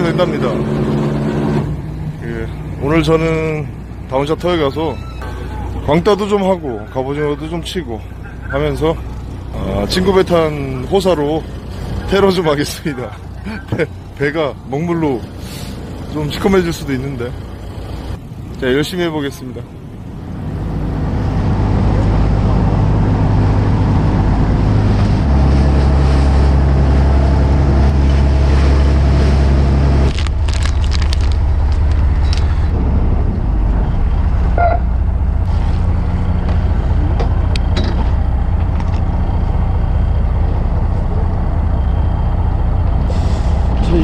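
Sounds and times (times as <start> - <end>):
boat engine running: 0.0 - 44.0
water rushing: 20.2 - 31.9.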